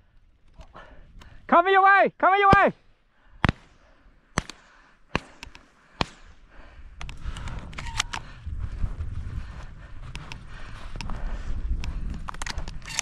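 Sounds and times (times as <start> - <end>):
shotgun shots: 3.4 - 6.3
wind noise on microphone: 6.6 - 13.0
light clicks: 7.0 - 8.4, 10.0 - 13.0.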